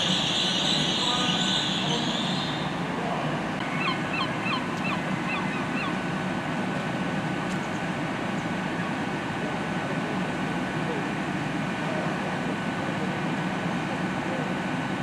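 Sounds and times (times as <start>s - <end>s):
bird calling: 0.0s - 2.8s, 3.6s - 6.2s
train engine humming: 0.0s - 15.0s.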